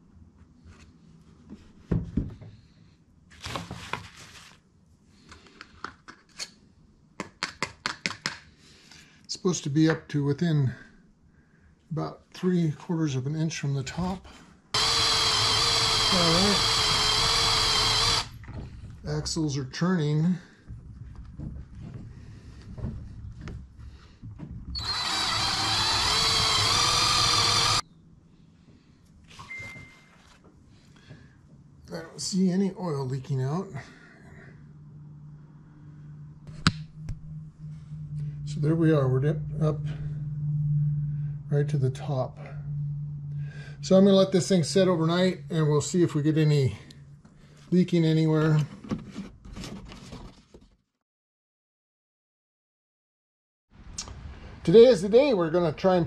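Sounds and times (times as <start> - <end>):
plastic rustling: 3.3 - 4.7
cordless drill whine: 14.8 - 18.5, 24.7 - 27.8.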